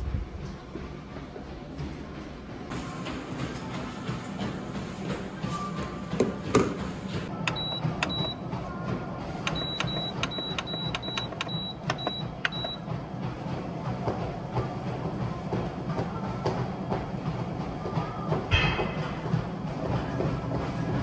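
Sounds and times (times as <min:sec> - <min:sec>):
short high beeps with clicks: 0:09.5 - 0:12.8.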